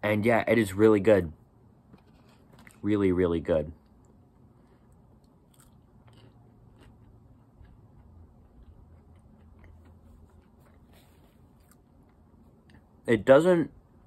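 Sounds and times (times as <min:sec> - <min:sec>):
person chewing french fry: 0:02.0 - 0:02.8, 0:03.8 - 0:13.0.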